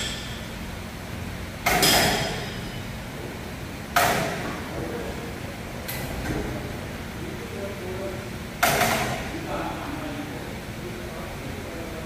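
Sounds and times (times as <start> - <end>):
low steady hum: 0.0 - 12.0
metal-on-metal knocks: 1.6 - 2.8.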